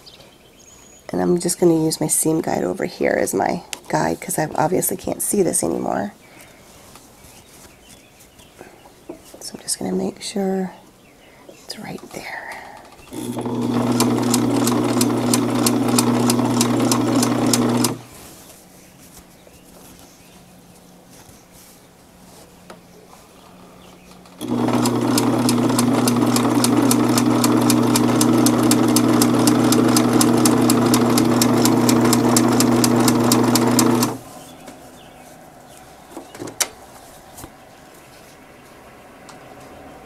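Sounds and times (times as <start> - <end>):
sewing machine stitching: 13.1 - 18.1, 24.4 - 34.3.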